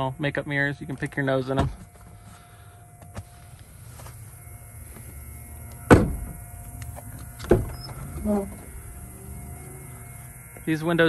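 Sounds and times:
low steady rumble: 0.0 - 11.0
van door shutting: 5.7 - 10.6.

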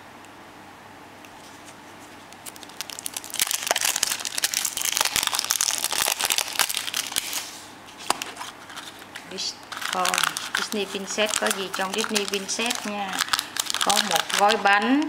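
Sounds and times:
plastic wrapper crinkling: 1.4 - 15.0.

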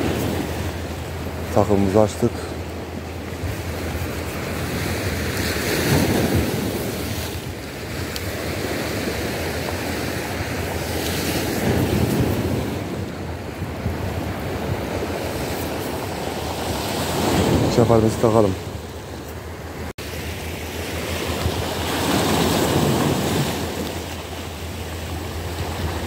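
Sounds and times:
waves washing against rocks: 0.0 - 26.0
wind buffeting microphone: 2.5 - 20.0.

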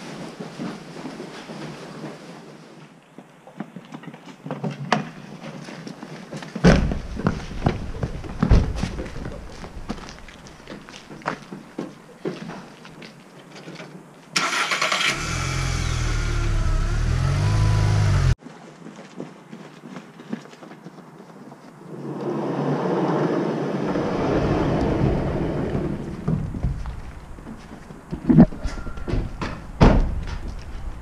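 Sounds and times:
engine-like rumble: 15.1 - 18.4
vehicle engine running: 15.1 - 18.4.

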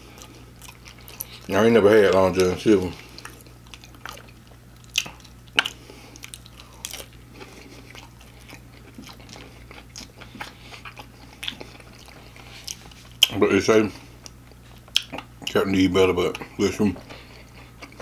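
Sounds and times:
crunching crispy fried food: 0.0 - 13.4.

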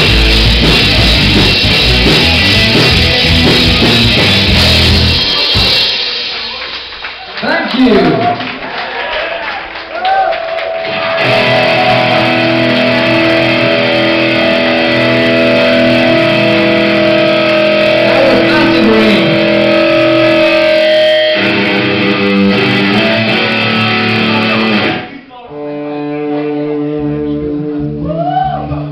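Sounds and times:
rock band playing distorted guitars: 0.0 - 8.8, 9.8 - 28.1
falling pitch sweep: 10.1 - 25.0.

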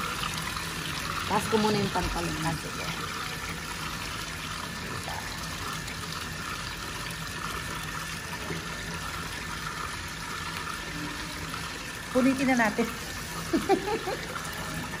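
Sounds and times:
water running into basin: 0.0 - 15.0.

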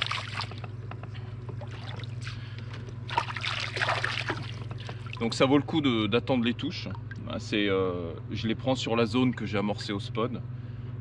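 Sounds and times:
water splashing and trickling: 0.0 - 5.5
steady low hum: 0.0 - 11.0.

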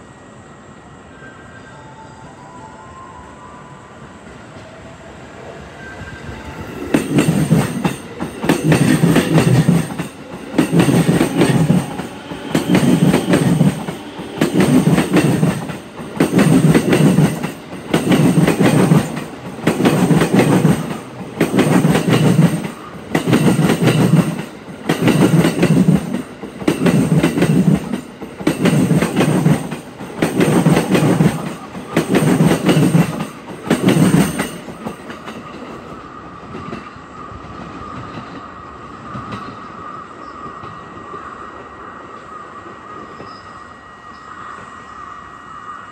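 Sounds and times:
electric train rolling past: 0.0 - 45.9.

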